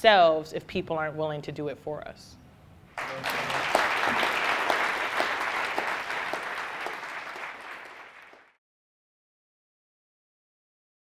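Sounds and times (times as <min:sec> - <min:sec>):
audience applauding: 0:03.0 - 0:08.6.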